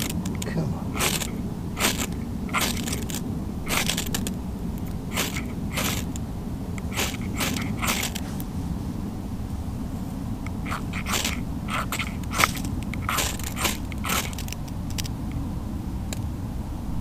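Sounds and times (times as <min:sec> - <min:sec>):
ferro rod scraping strikes: 0:00.0 - 0:06.2, 0:06.8 - 0:08.5, 0:10.5 - 0:15.1.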